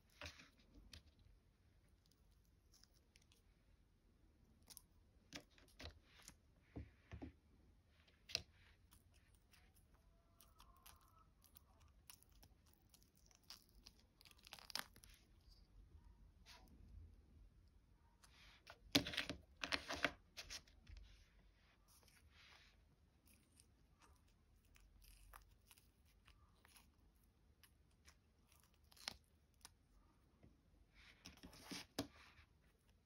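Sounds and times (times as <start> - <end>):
silicone mold peeling and crackling: 8.1 - 15.8, 21.8 - 30.3.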